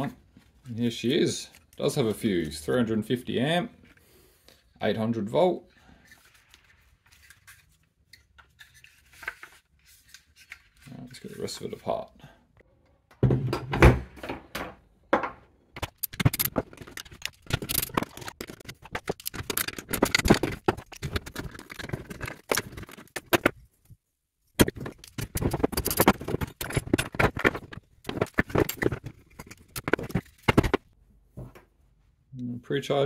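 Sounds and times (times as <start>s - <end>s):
plastic parts clicking and rattling: 15.8s - 23.7s, 24.6s - 31.0s.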